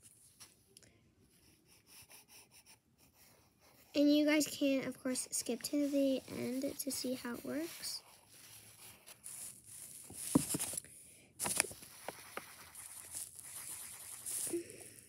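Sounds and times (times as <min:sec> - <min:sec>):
paper rustling and crinkling: 0:05.4 - 0:10.8, 0:11.4 - 0:14.6.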